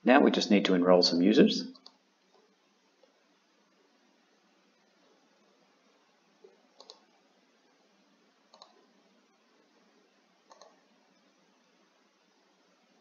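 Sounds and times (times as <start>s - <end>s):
low hiss: 0.0s - 13.0s
computer mouse clicks: 1.7s - 2.4s, 6.7s - 7.2s, 8.5s - 8.8s, 10.5s - 10.8s.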